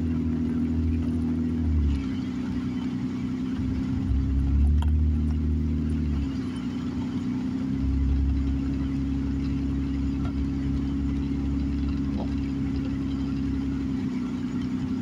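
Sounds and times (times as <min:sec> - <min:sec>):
car engine and tyre noise: 0:00.0 - 0:15.0.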